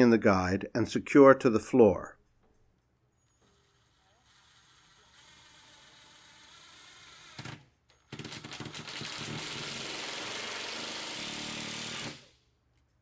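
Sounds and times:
cordless drill driving a screw: 3.3s - 12.3s.

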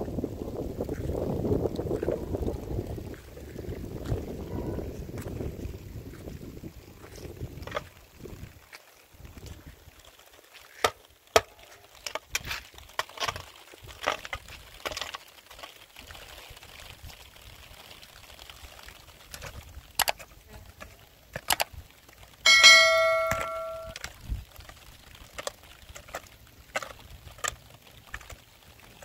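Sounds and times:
shovel strike ringing: 22.5s - 24.0s.

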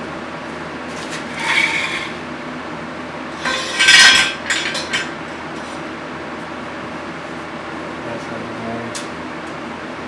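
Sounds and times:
fan humming: 0.0s - 10.0s
hard parts clinking and scraping: 1.3s - 2.2s, 3.4s - 5.2s.

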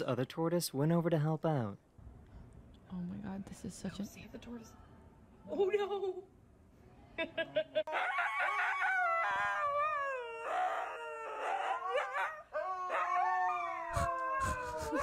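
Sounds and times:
dog howling: 7.9s - 15.0s.

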